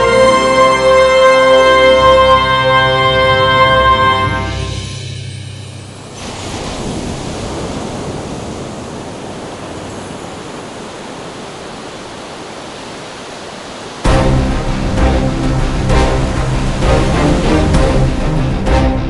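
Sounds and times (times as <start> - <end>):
music: 0.0 - 6.2, 14.1 - 19.0
steady rushing noise: 4.5 - 19.0.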